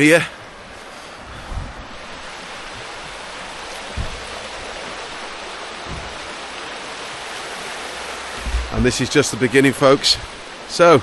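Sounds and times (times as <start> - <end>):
stream rushing over stones: 0.0 - 11.0
low thumps: 3.7 - 6.6, 8.3 - 9.2.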